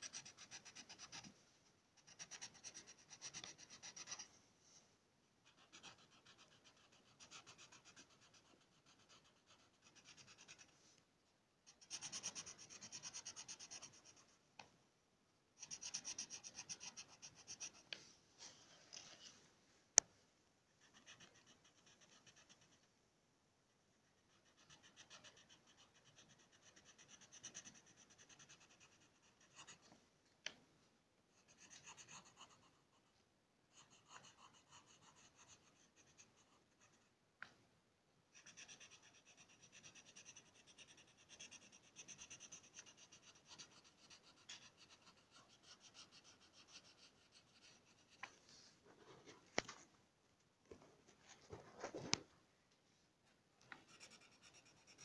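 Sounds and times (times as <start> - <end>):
pencil scratching on paper: 0.0 - 1.4, 2.0 - 4.4, 5.4 - 10.9, 11.7 - 14.4, 15.6 - 18.0, 20.8 - 22.9, 24.1 - 30.0, 31.4 - 37.1, 38.4 - 48.4, 53.7 - 55.0.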